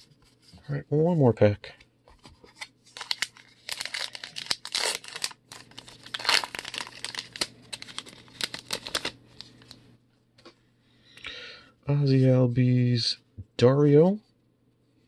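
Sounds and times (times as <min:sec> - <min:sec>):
wrapper torn and crinkled: 0:02.9 - 0:09.8.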